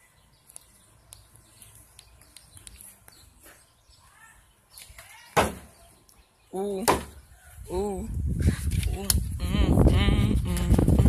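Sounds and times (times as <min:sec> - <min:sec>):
sharp loud knock: 0:05.4 - 0:05.7.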